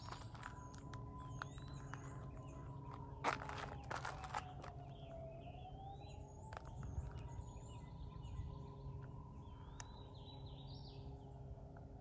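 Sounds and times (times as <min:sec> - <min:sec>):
distant emergency siren wailing: 0:00.0 - 0:12.0.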